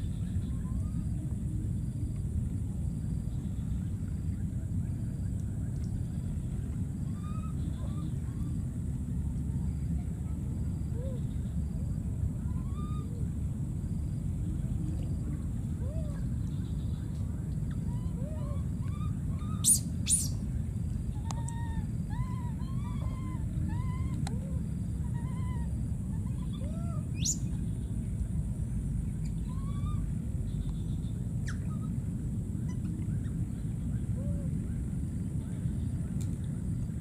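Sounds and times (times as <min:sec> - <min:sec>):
steady low rumble: 0:00.0 - 0:37.0
chirping animal calls: 0:17.7 - 0:20.4, 0:25.1 - 0:27.5.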